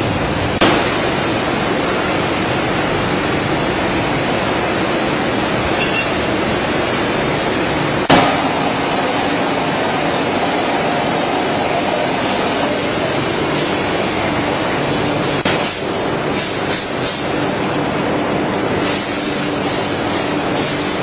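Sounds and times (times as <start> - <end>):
machine running steadily: 0.0 - 21.0
machine clack: 8.1 - 13.1.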